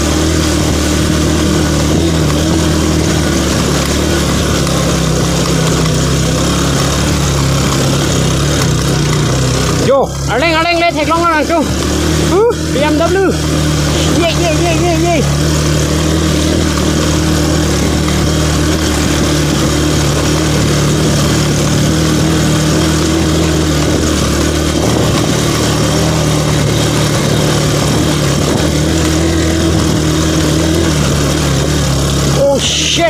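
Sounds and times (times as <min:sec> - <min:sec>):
motorcycle engine running: 0:00.0 - 0:33.0
wind noise: 0:17.6 - 0:31.8.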